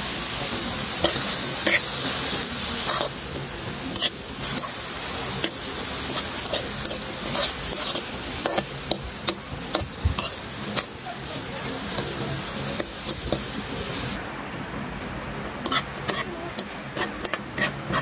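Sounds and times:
fruit sizzling in a pan: 0.0 - 14.2, 15.6 - 18.0
metal spoon scraping a pan: 0.9 - 3.2, 3.9 - 11.0, 15.6 - 18.0.

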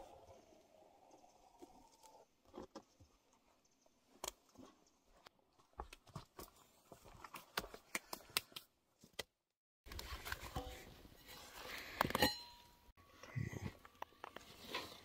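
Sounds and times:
hands and tool working soil: 13.3 - 15.0.

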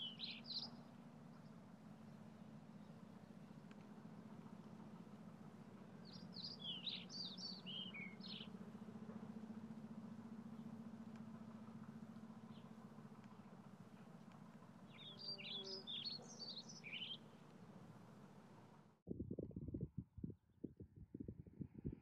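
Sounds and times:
songbird chirping: 0.0 - 4.8, 6.0 - 8.6, 12.4 - 17.7
low steady hum: 0.0 - 22.0.

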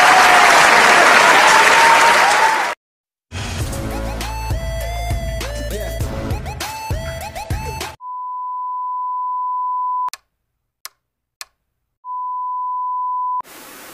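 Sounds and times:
music: 3.3 - 8.0.

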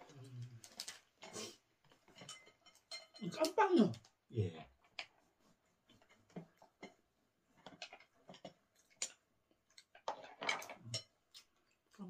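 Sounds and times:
cutlery tapping wooden bowls: 1.9 - 4.2, 9.8 - 11.6.

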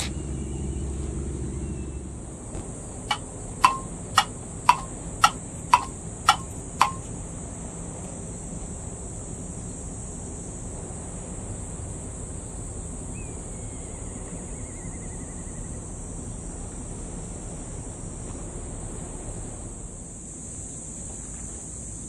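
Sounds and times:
insect chorus: 0.0 - 22.0
wind: 0.0 - 22.0
bird trilled whistle: 3.1 - 7.0.

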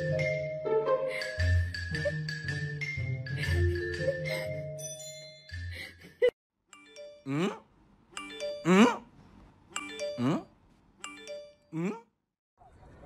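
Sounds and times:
chime-like mallet music: 0.0 - 6.1, 6.7 - 7.5, 8.2 - 8.8, 9.8 - 11.7.

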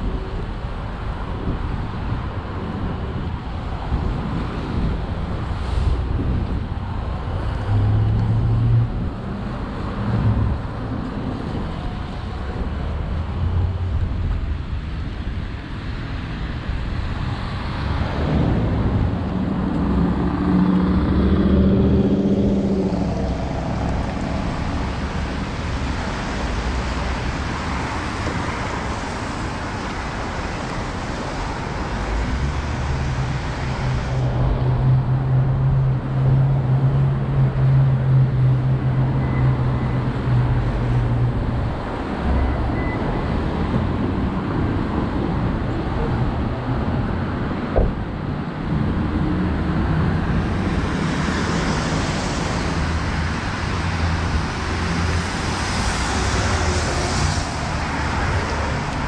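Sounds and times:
cars passing: 0.0 - 59.0
vehicle engine hum: 0.0 - 59.0
tyres hissing on wet road: 5.4 - 6.5, 22.0 - 34.5, 49.4 - 59.0
low engine drone: 18.0 - 27.0.

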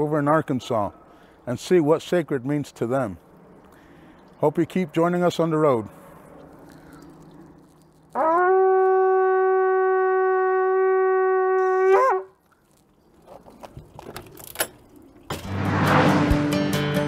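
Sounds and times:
shofar blast: 8.1 - 12.3
music: 15.4 - 17.0.

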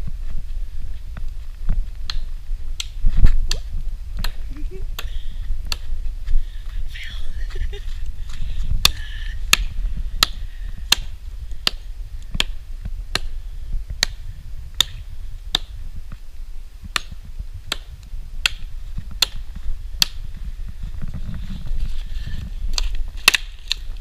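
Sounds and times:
low rumble: 0.0 - 23.2
hatchet chopping wood: 5.7 - 5.9, 8.8 - 13.4, 14.0 - 14.2, 14.8 - 15.8, 16.9 - 20.2, 22.8 - 23.8.

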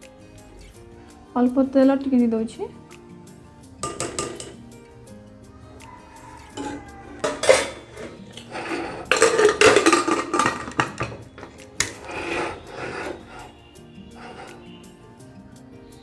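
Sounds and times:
metal ladle clinking: 3.8 - 4.6, 6.5 - 13.5, 14.2 - 14.7
pressure cooker lid clattering: 3.8 - 4.6, 6.6 - 13.4.

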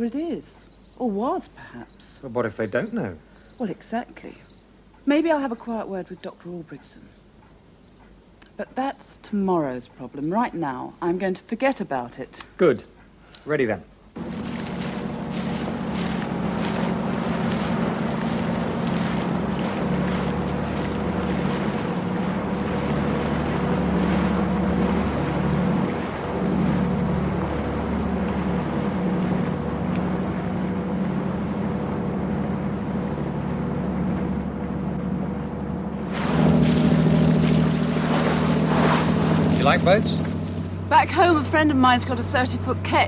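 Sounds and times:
wind: 0.0 - 43.0
motorboat engine running: 14.1 - 43.0
water noise: 14.1 - 43.0.

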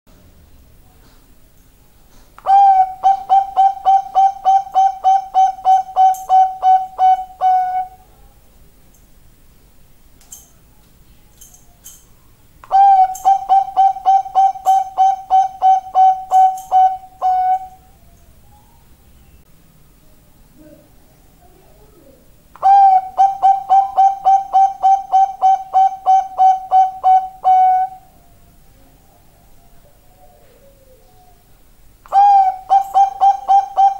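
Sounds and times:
dove cooing: 2.4 - 8.3, 12.6 - 19.1, 21.7 - 33.9.

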